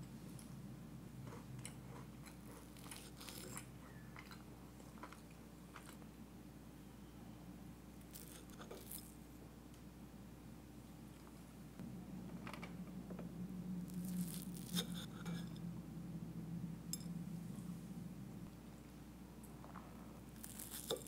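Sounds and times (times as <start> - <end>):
low steady hum: 0.0 - 21.0
crust crunching under fork: 1.3 - 6.0, 8.0 - 9.2, 13.9 - 15.5, 20.4 - 21.0.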